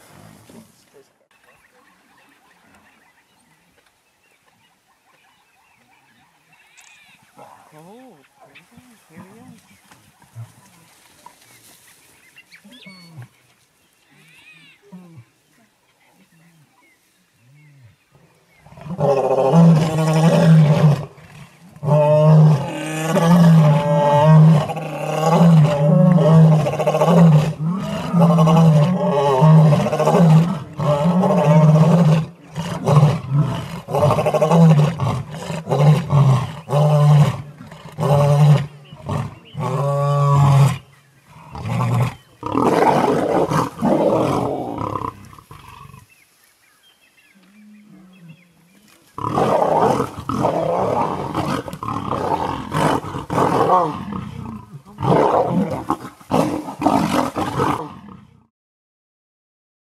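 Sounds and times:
lions growling and snarling: 17.6 - 46.2, 47.4 - 58.5.

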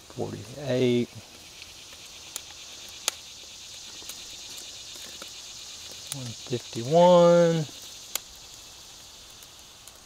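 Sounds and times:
meat sizzling on a grill: 0.0 - 10.0
sharp pops: 1.6 - 6.8, 7.7 - 8.6.

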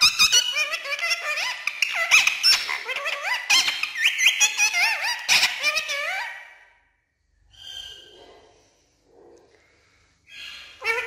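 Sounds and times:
parakeet chattering: 0.0 - 6.5, 10.3 - 11.0.

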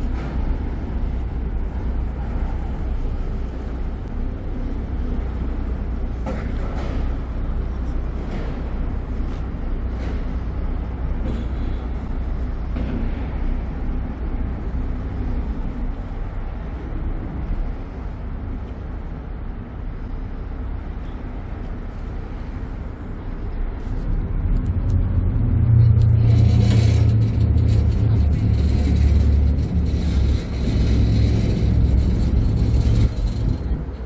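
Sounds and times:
ferry engines rumbling: 0.0 - 34.0.

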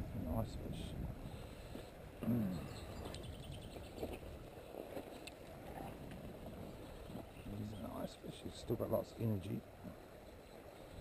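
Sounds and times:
grunt-like voice: 2.2 - 2.7.

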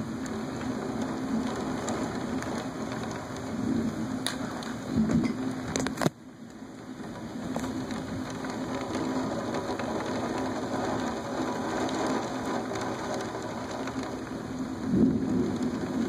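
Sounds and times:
steady rain falling: 0.0 - 16.0
low thunder rumble: 14.7 - 16.0.

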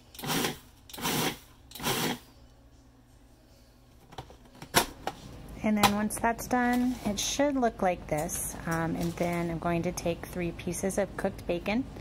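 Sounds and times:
food processor chopping bursts: 0.2 - 2.2.

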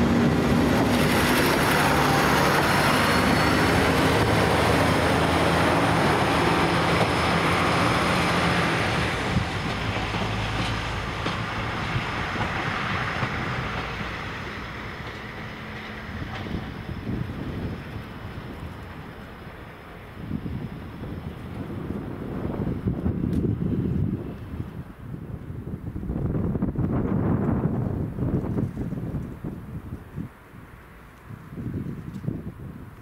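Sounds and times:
wheels clicking over rail joints: 0.0 - 22.1
diesel train engine and wheels: 0.0 - 33.0.

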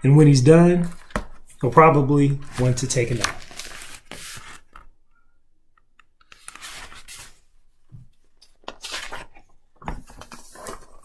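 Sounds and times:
book pages rustling: 0.8 - 1.7, 2.4 - 4.9, 6.2 - 11.0.

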